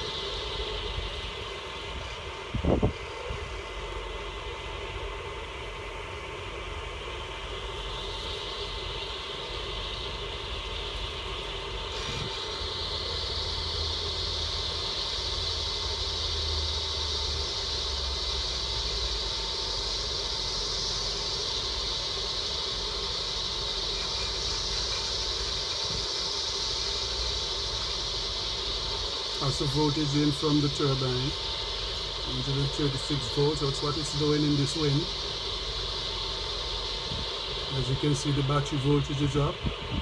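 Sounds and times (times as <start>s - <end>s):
faint steady whine: 0.0s - 40.0s
storm wind roaring: 0.7s - 3.6s.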